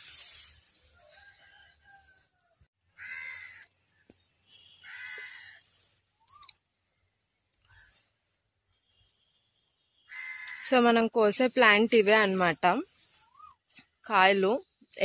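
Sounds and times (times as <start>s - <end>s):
crow cawing: 2.9s - 3.8s, 4.8s - 5.6s, 10.1s - 10.6s.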